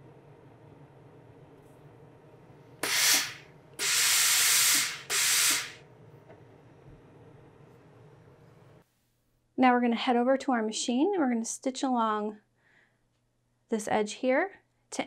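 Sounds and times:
steam iron hissing: 2.8s - 5.8s.

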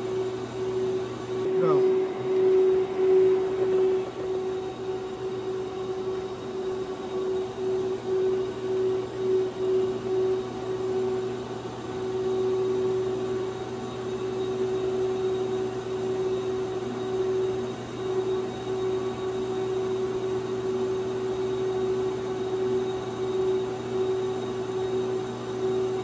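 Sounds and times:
low hum: 0.0s - 11.3s
robot servo whine: 1.5s - 4.6s.

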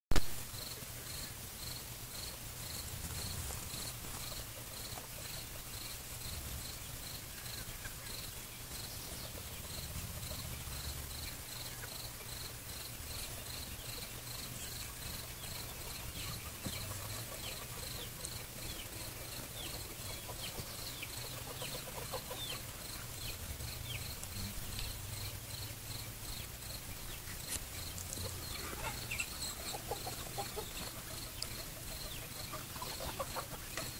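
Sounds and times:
faint low hum: 0.2s - 33.9s
cricket chirping: 0.5s - 33.9s
bird chirps: 13.2s - 33.9s.

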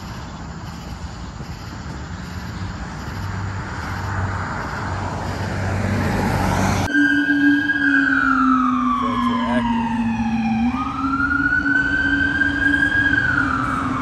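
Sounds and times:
road noise: 0.0s - 14.0s
vehicle engine drone: 0.0s - 14.0s.

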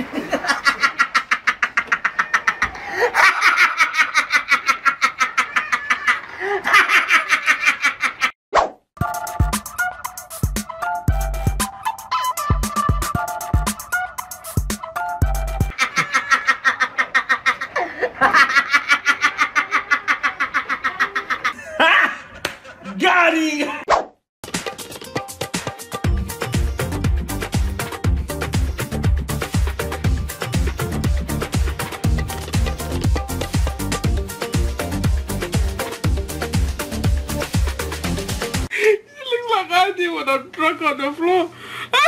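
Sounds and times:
person laughing hard: 0.0s - 8.3s, 15.7s - 23.0s.

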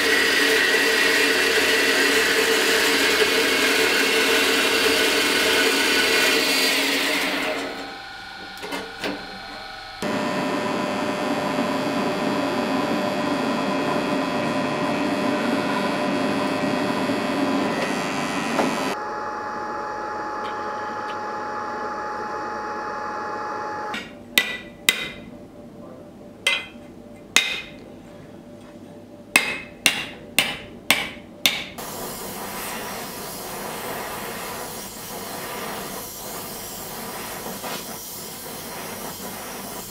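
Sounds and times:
metal-cutting bandsaw running: 0.0s - 25.2s, 31.4s - 39.0s
gas torch flame hissing: 31.8s - 39.9s.

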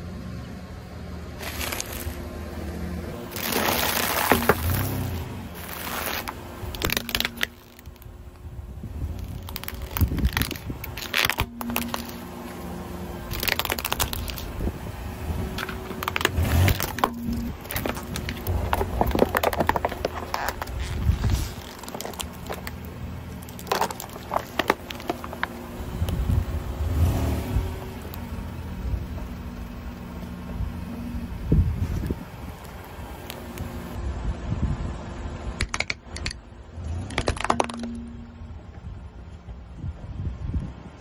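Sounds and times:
tyre crushing objects on asphalt: 1.4s - 2.4s, 3.1s - 28.3s.

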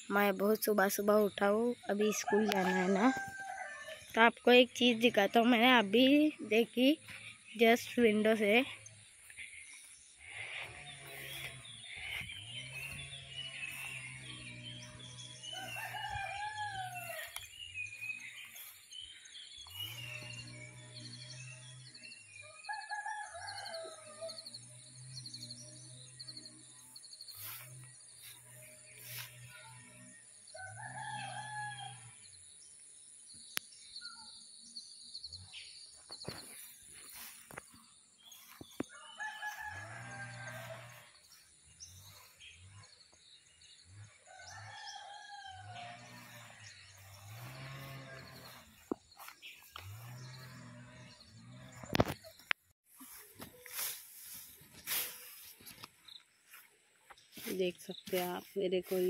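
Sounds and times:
rooster crowing: 2.2s - 4.0s, 15.5s - 17.4s, 38.9s - 41.1s, 44.3s - 46.4s
small birds chirping: 3.0s - 59.0s.

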